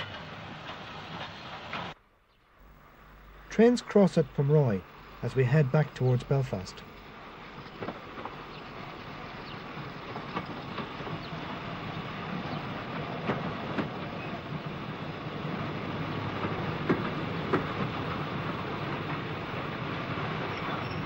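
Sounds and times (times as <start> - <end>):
steam train approaching: 0.0 - 21.0
sharp knocks and clanks: 16.4 - 18.0.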